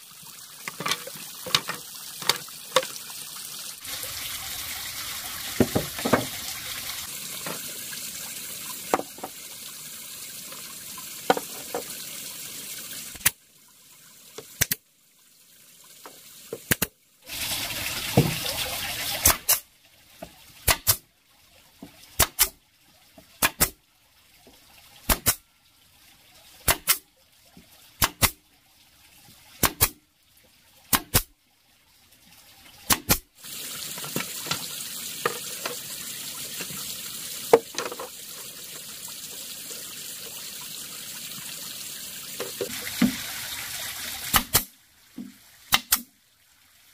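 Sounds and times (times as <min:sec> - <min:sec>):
bamboo pieces clacking on wood: 0:00.6 - 0:03.0, 0:37.5 - 0:38.1.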